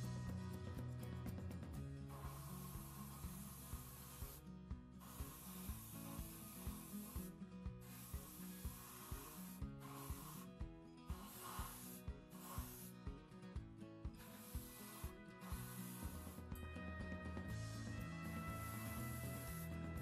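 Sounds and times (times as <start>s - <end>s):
background music with steady beat: 0.0s - 20.0s
airbrush spraying hiss: 2.1s - 13.2s, 14.1s - 16.5s, 18.2s - 20.0s.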